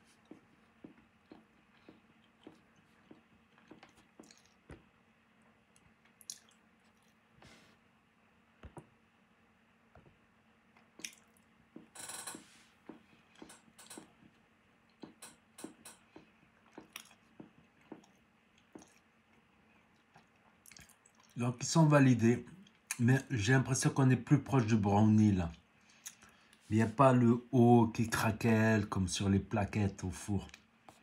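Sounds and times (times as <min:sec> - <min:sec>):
faint chewing: 0:00.0 - 0:07.8, 0:09.9 - 0:11.9, 0:12.8 - 0:21.4, 0:22.5 - 0:23.0, 0:25.5 - 0:26.7, 0:30.4 - 0:31.0
mouth clicks and smacks: 0:00.3 - 0:04.9, 0:05.7 - 0:07.2, 0:10.8 - 0:11.9, 0:14.9 - 0:21.4, 0:25.9 - 0:26.4.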